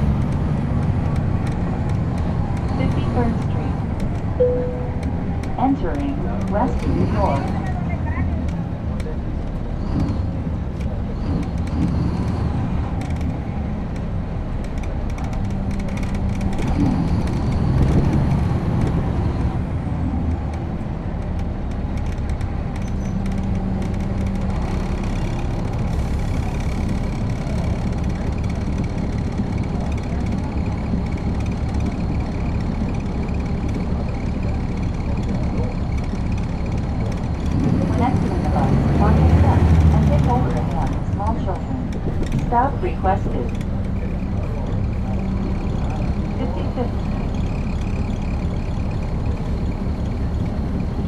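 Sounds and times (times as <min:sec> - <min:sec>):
bus diesel engine running: 0:00.0 - 0:51.0.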